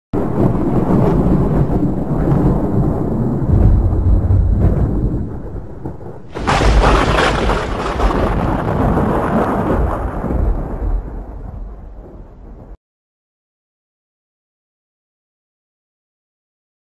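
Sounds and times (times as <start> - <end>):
thunder-like rumbling: 0.2 - 12.8
loud crash: 6.3 - 11.1.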